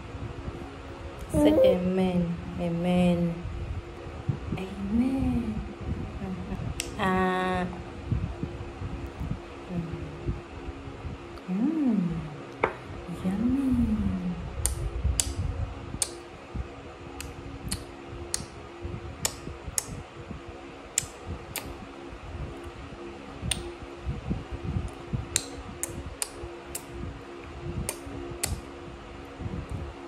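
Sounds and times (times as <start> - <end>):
steady low fan hum: 0.0 - 30.0
woman speaking: 1.3 - 3.4, 4.6 - 7.8, 9.7 - 10.1, 11.4 - 12.4, 13.1 - 14.4.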